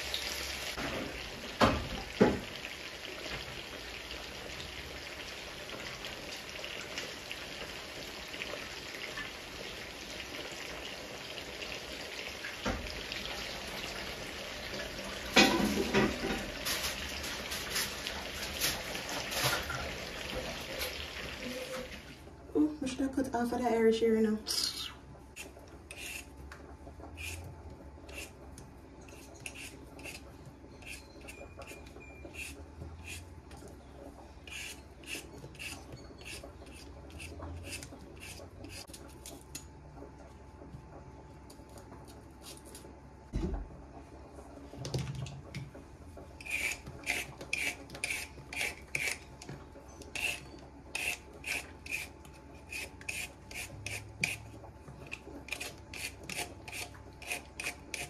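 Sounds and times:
peeler scraping carrot: 24.5 - 26.3, 27.1 - 28.4, 29.1 - 33.3, 34.4 - 39.2, 46.4 - 49.3, 50.0 - 58.0
peeler scraping potato skin: 24.5 - 26.3, 27.1 - 28.4, 29.1 - 33.3, 34.4 - 39.4, 46.4 - 49.3, 50.0 - 58.0.

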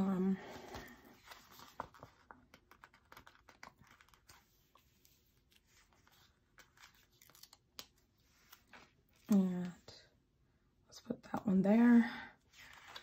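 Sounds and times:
paper sticker sheets rustling: 0.7 - 9.4.

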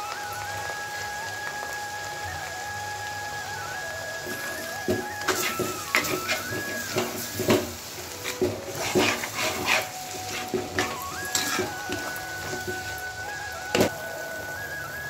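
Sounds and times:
faint sizzle: 0.0 - 15.0
metal spatula scraping a pot: 4.5 - 13.0.

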